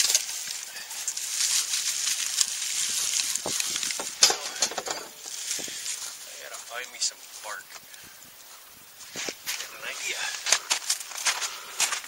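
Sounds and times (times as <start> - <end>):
bark crumbling between hands: 0.0 - 6.2.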